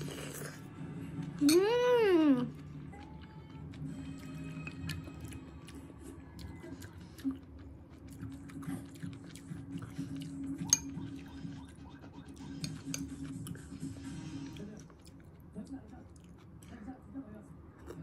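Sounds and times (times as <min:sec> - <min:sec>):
chewing: 0:02.4 - 0:16.8.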